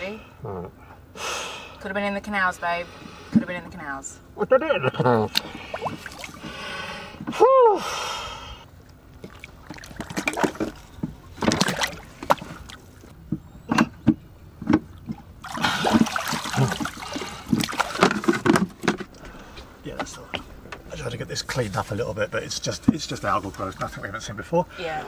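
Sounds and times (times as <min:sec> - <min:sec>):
water splashing and sloshing: 0:05.3 - 0:07.3, 0:08.7 - 0:20.8
short cry: 0:07.3 - 0:08.0.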